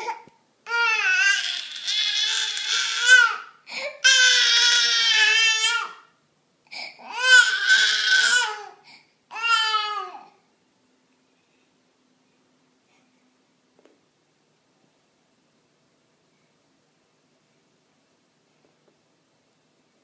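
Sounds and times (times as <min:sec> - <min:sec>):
baby crying angrily: 0:00.0 - 0:06.1, 0:06.8 - 0:10.4.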